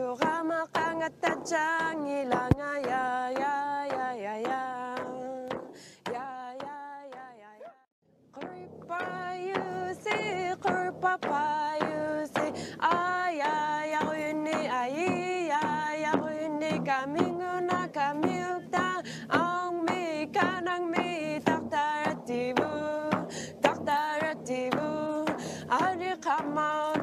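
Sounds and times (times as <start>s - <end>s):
short percussive taps: 0.2s - 7.4s
person singing with vibrato: 8.4s - 27.0s.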